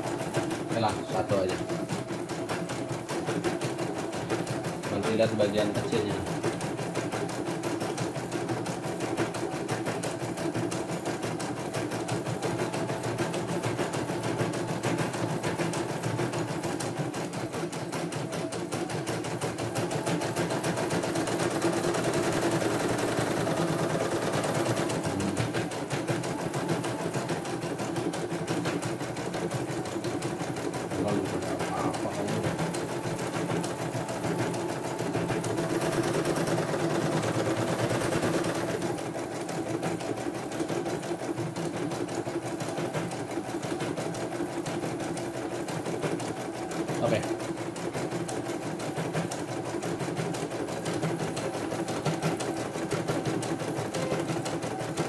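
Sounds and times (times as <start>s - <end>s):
embroidery machine stitching: 0.0s - 55.0s.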